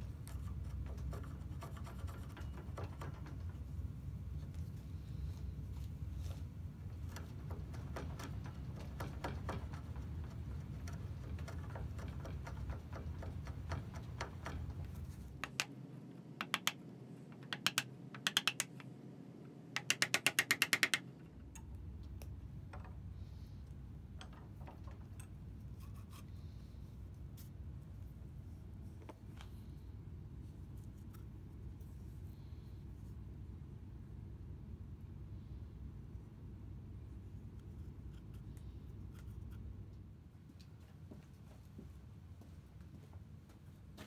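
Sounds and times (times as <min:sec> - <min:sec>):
steady low hum: 0:00.0 - 0:44.0
sharp clicks: 0:16.4 - 0:18.9.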